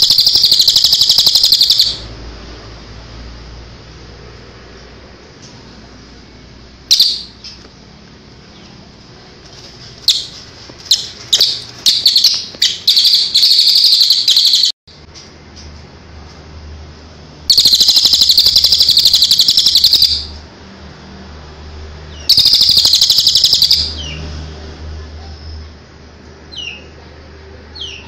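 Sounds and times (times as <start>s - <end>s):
jay rattling calls: 0.0s - 2.0s, 10.0s - 14.7s, 22.3s - 23.9s.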